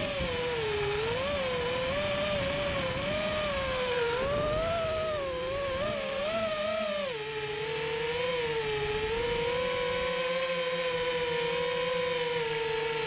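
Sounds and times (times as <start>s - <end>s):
drone motors and propellers whining: 0.0s - 13.0s.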